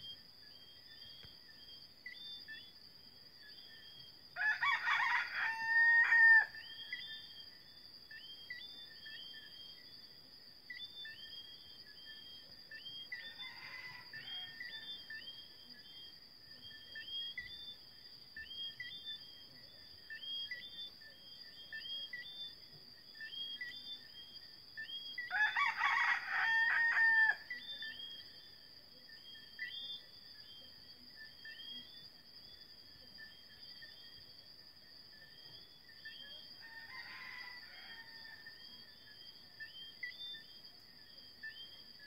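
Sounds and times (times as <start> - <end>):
rooster crowing: 4.4 - 6.6, 13.3 - 14.7, 25.3 - 27.5, 36.6 - 38.5.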